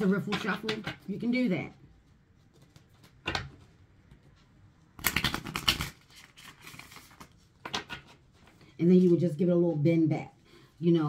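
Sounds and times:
cards rustling: 0.0 - 9.2
cards riffle shuffled: 5.0 - 8.2.

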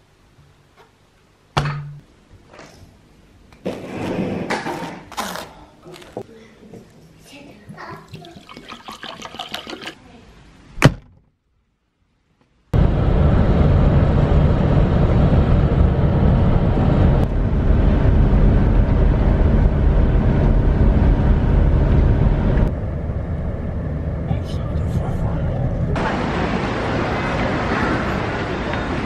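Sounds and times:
water sloshing in a glass: 7.9 - 10.0
van road and engine rumble: 12.7 - 29.0.

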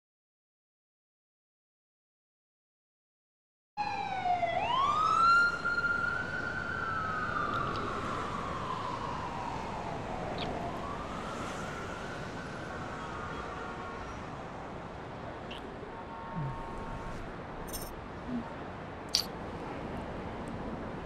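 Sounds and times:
emergency vehicle siren wailing: 3.8 - 14.7
city traffic noise: 3.8 - 21.0.

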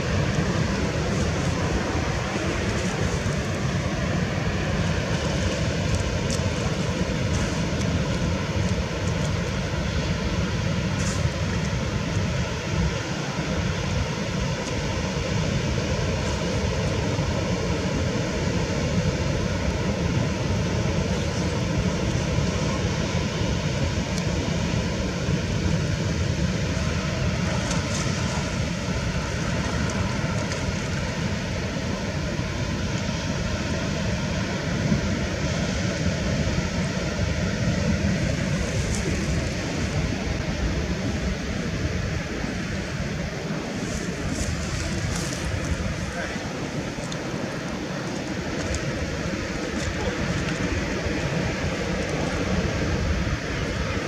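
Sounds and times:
wind on microphone: 0.0 - 54.0.

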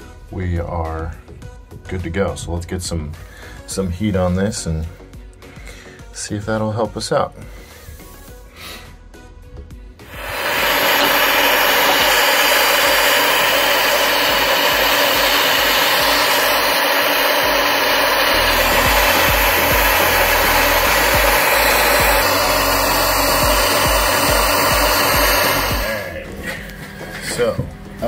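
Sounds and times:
gas torch hissing: 10.0 - 28.0.

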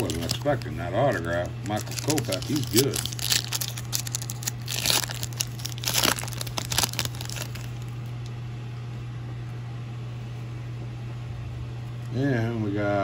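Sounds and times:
trading cards shuffling: 0.0 - 7.9
steady low hum: 0.0 - 13.0.

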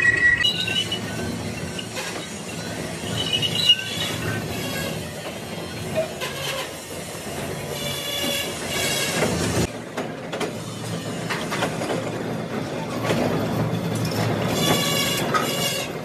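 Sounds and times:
cutting tool squealing on steel: 0.0 - 5.1.

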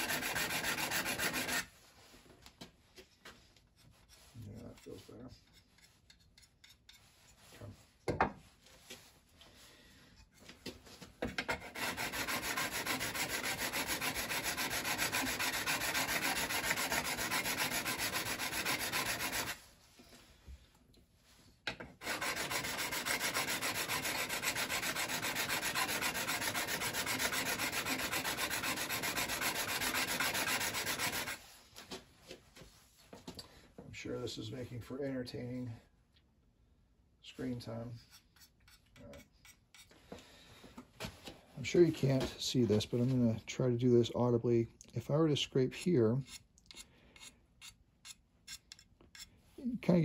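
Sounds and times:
metal scraper rasping on stone: 0.0 - 1.7, 5.5 - 7.3, 11.4 - 19.6, 22.0 - 31.4, 45.7 - 49.3.

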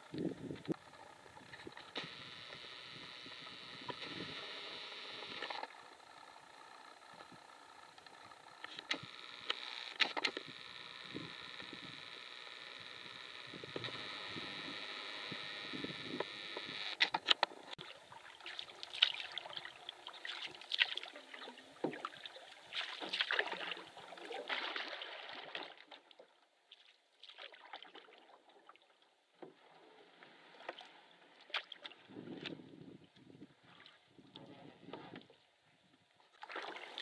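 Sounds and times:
water lapping at hull: 17.0 - 37.0
paddle strokes splashing: 17.5 - 26.1, 36.3 - 37.0.

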